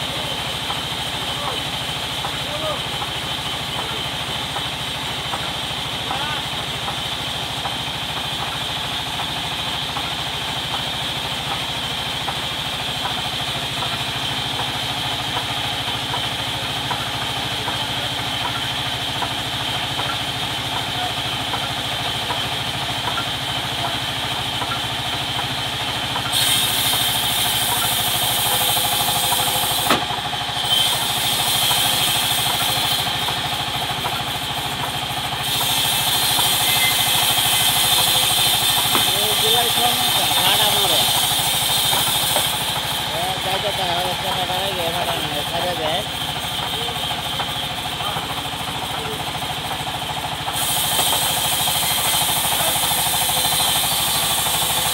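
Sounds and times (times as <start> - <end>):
sawmill humming: 0.0 - 54.9
saw blade cutting log: 26.2 - 49.2, 50.5 - 54.9
sharp knock: 29.9 - 30.1, 38.9 - 39.2.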